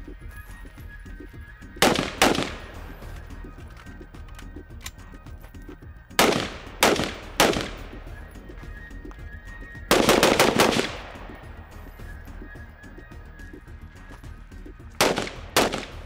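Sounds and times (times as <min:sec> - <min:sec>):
carbine gunshots: 0:01.7 - 0:08.6, 0:09.8 - 0:13.1, 0:14.9 - 0:16.0.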